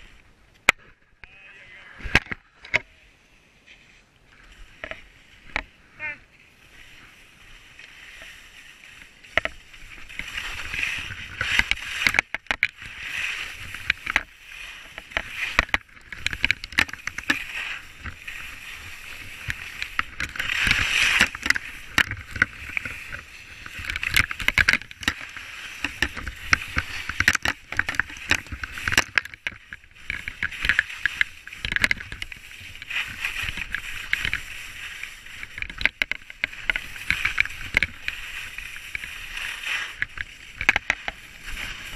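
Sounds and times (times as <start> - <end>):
sharp clicks and knocks: 2.1 - 2.9, 9.2 - 34.5, 35.3 - 41.7
skis scraping over snow: 2.9 - 41.9.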